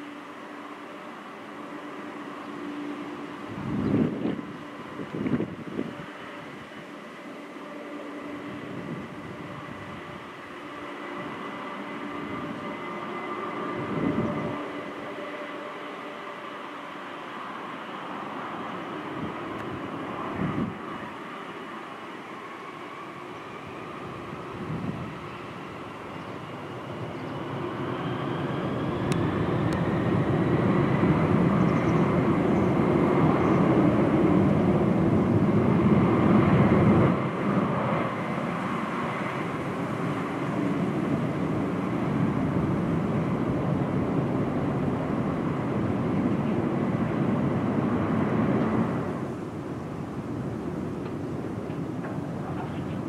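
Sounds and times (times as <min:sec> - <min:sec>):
jet engine roar: 0:00.0 - 0:53.0
rising fan whine: 0:00.0 - 0:53.0.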